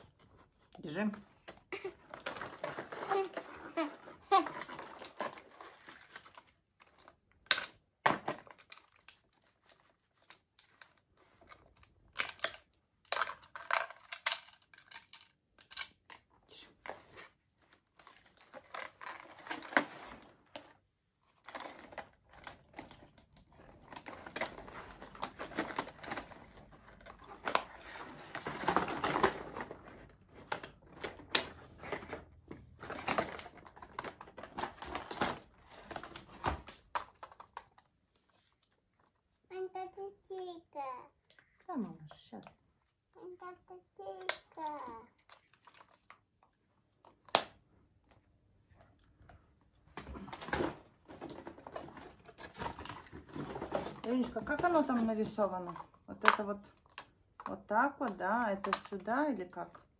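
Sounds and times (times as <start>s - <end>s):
cardboard packaging rustling: 0.0s - 7.3s, 16.9s - 38.9s, 49.9s - 55.0s
plastic toy pieces clicking: 12.0s - 16.3s.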